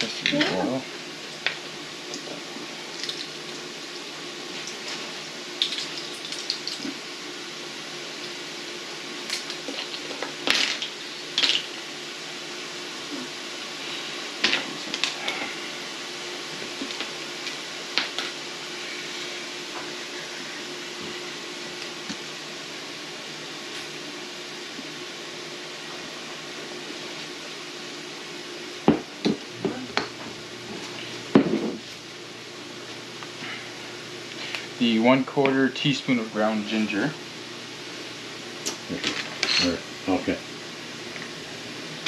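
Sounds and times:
steady hiss: 0:00.0 - 0:29.6, 0:30.4 - 0:42.0
faint hum: 0:00.0 - 0:42.0.

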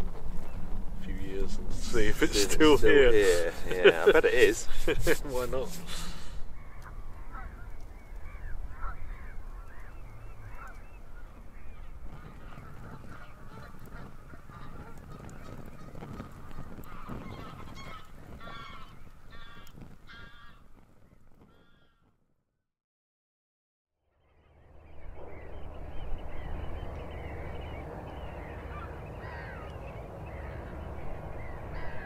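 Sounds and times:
wood fire crackling: 0:00.0 - 0:21.8
geese honking: 0:01.0 - 0:20.6, 0:25.2 - 0:32.0.

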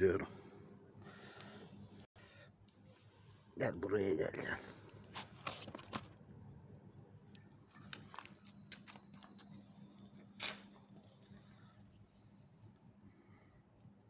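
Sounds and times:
faint steady hum: 0:00.0 - 0:14.0
soft handling clicks and rustles: 0:04.8 - 0:06.2, 0:07.2 - 0:13.1.

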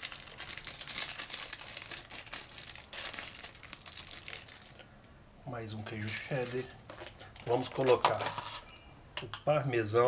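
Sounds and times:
plastic wrapping crinkling: 0:00.0 - 0:04.8, 0:05.9 - 0:08.8.

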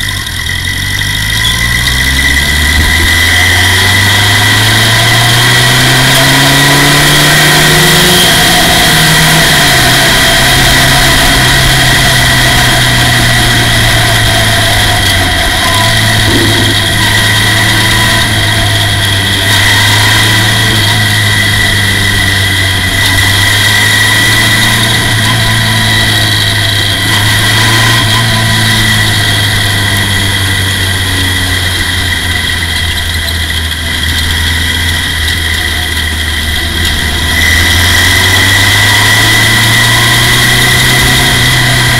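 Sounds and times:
race car engine running hard: 0:00.0 - 0:41.9.

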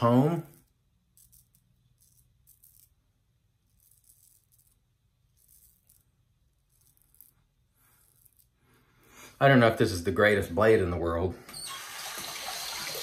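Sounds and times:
razor scraping stubble: 0:03.6 - 0:08.6.

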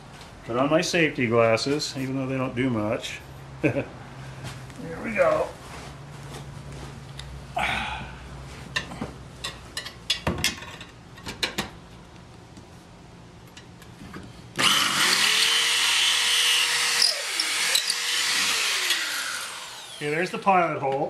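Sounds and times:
electric drill boring into plywood: 0:14.6 - 0:20.2.

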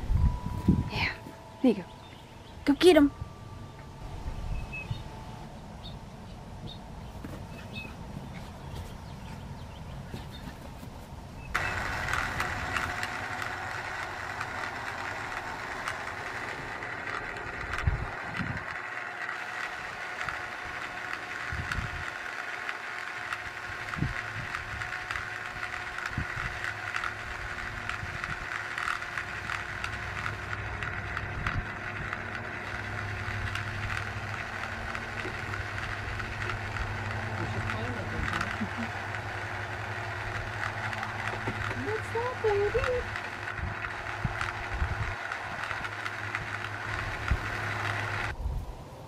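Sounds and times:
small electric motor whirring: 0:00.0 - 0:48.7.

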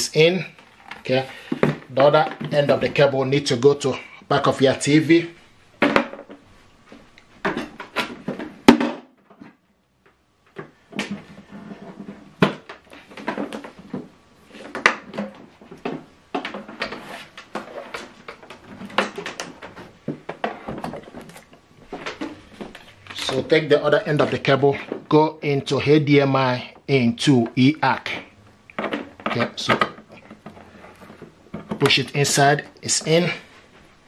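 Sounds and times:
clattering and rustling: 0:05.8 - 0:25.2, 0:28.1 - 0:32.4
handling knocks and clicks: 0:07.1 - 0:25.1, 0:28.1 - 0:32.2.

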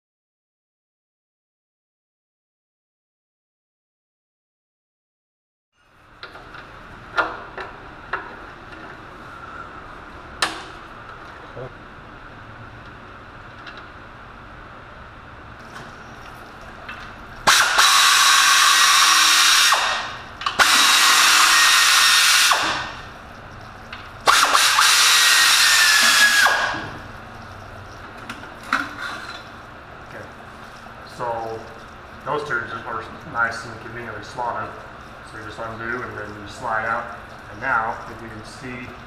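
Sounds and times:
handheld power tool running: 0:17.4 - 0:23.0, 0:24.2 - 0:27.0.

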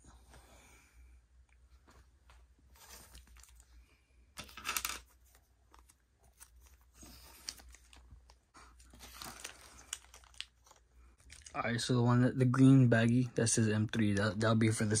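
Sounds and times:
plastic bags crinkling: 0:05.7 - 0:11.9.

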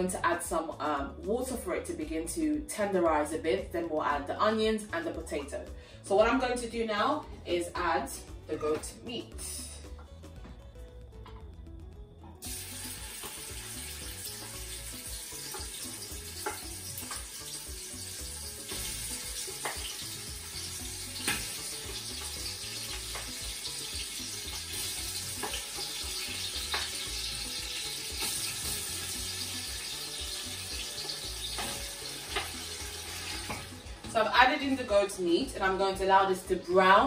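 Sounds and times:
meat sizzling in hot oil: 0:12.4 - 0:34.1.

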